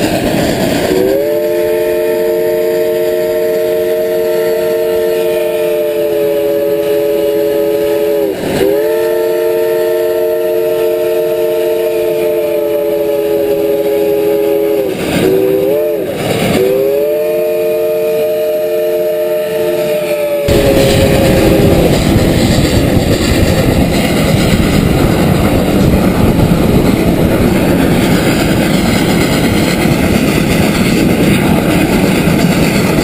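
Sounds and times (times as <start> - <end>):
steam chime whistle: 0.9 - 24.8
rushing noise: 19.5 - 33.0.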